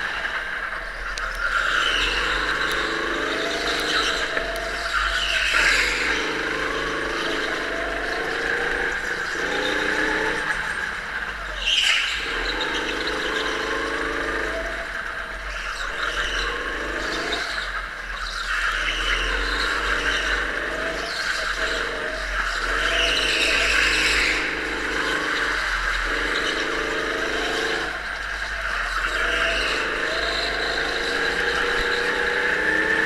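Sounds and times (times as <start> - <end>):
go-kart engine revving: 0.0 - 33.0.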